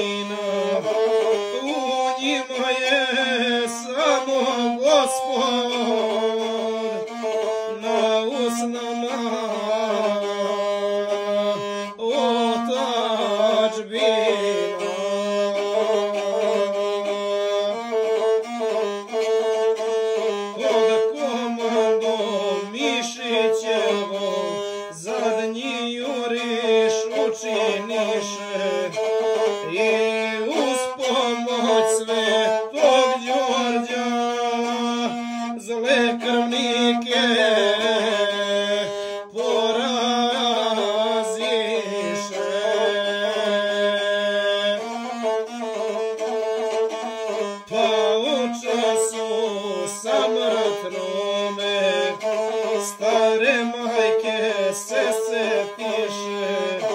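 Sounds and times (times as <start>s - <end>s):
single-string bowed fiddle melody: 0.0s - 56.9s.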